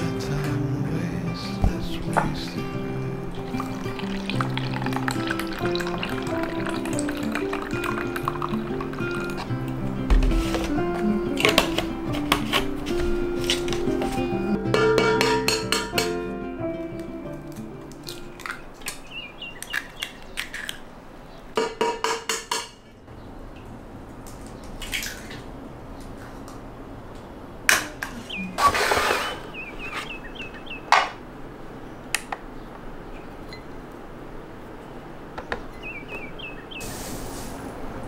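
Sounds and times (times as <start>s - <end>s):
eggs cracking on metal bowl: 3.3s - 9.8s, 14.7s - 16.2s, 17.5s - 20.9s.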